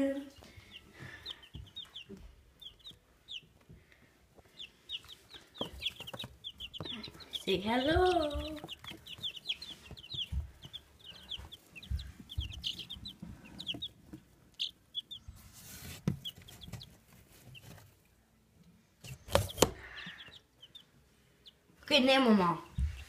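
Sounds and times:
chicks peeping: 0.0 - 23.0
soft low thumps: 5.6 - 14.4, 22.7 - 23.0.

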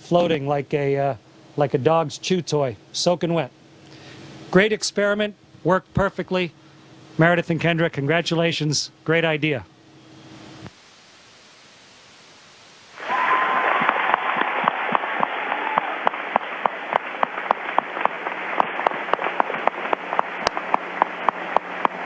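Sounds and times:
steady hiss: 0.0 - 22.0
small group clapping: 13.0 - 22.0.

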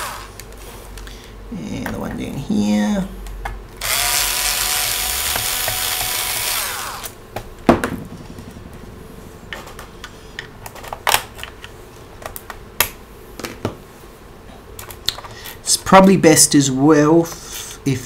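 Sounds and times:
electric screwdriver whirring: 0.0 - 0.4, 3.8 - 7.2.

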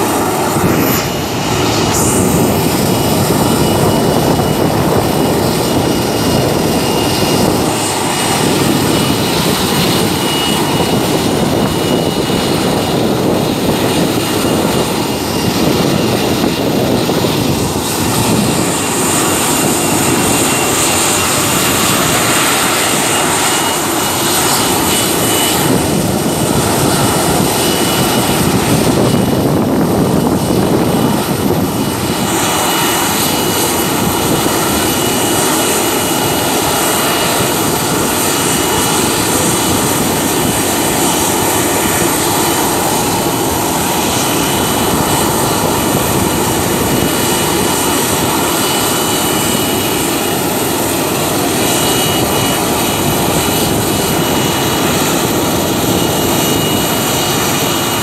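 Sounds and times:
thin high whine: 0.0 - 13.4
jet engines idling roar: 0.0 - 58.0.

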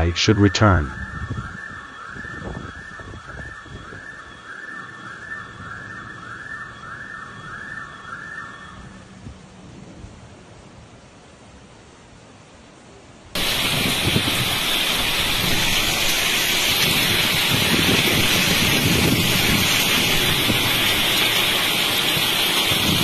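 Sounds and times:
heavy rain pouring: 13.4 - 23.0.

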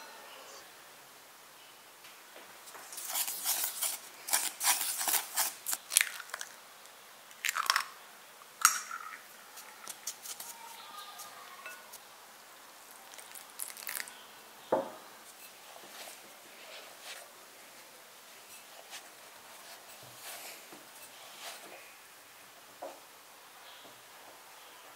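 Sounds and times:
flour crunching as it is stirred: 2.7 - 6.6, 9.6 - 12.0, 12.9 - 14.2.

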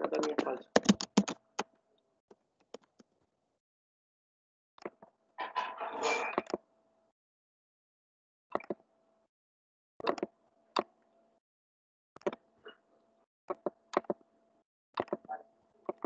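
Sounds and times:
mouse and keyboard clicks: 13.5 - 14.2, 15.0 - 15.3.

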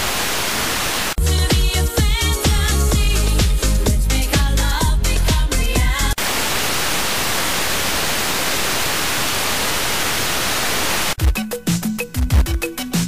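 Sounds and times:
radio static hiss: 0.0 - 1.2, 6.2 - 11.2.

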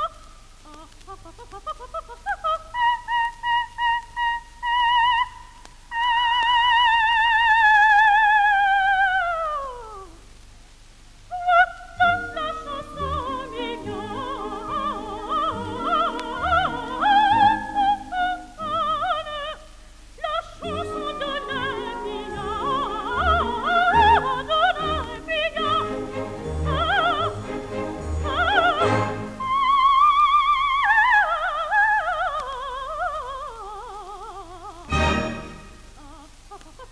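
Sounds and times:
soprano singing opera: 0.0 - 10.2, 11.3 - 36.9
orchestra playing: 12.1 - 18.8, 20.6 - 29.4, 34.9 - 36.0.

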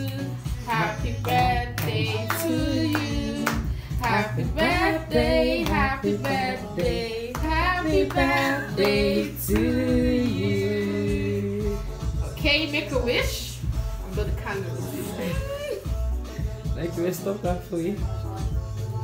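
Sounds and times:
hands clapping: 0.0 - 4.7, 5.6 - 9.7
person singing: 0.0 - 12.4, 14.8 - 16.8.

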